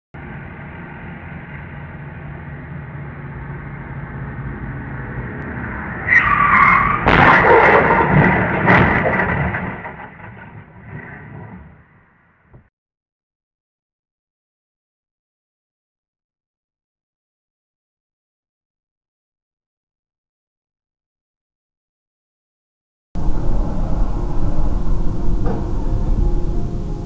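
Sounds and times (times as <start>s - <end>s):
road traffic: 0.2s - 12.7s, 23.2s - 27.0s
tyres squealing: 6.0s - 10.2s
car crash with crunching metal: 6.0s - 12.1s.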